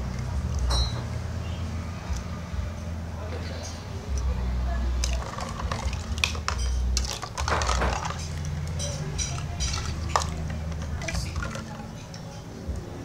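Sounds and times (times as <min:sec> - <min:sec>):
water sloshing: 0:04.9 - 0:12.2
plastic toys clattering: 0:05.0 - 0:11.8.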